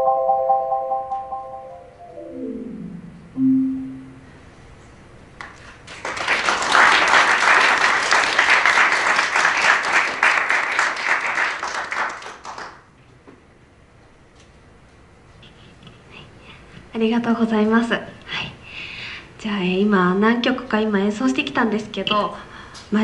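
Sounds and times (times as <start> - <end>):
marimba notes: 0.0 - 4.4
audience applauding: 5.4 - 12.9.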